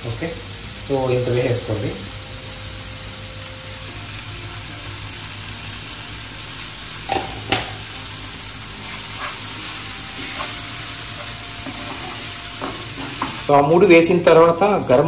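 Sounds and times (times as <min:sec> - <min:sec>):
masala sizzling in a frying pan: 0:00.0 - 0:15.0
wooden spatula stirring: 0:08.8 - 0:13.5.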